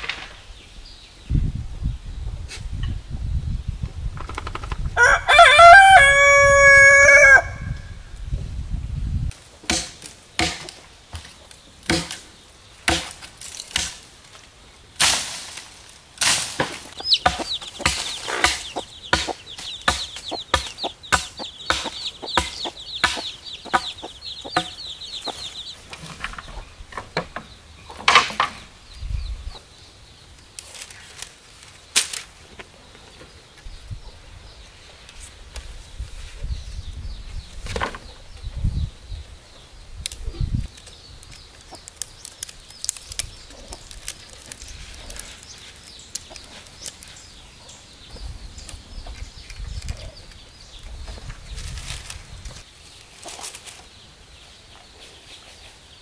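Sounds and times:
rooster crowing: 5.0s - 7.8s
chicks peeping: 16.8s - 28.0s, 36.4s - 56.0s.

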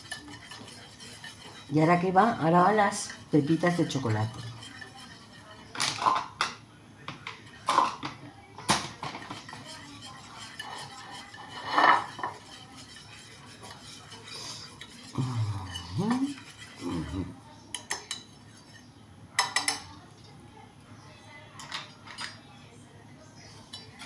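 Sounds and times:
whisk stirring thick batter: 0.0s - 5.9s, 9.0s - 19.7s
whisk clinking on glass bowl: 0.0s - 6.3s, 9.1s - 19.8s.

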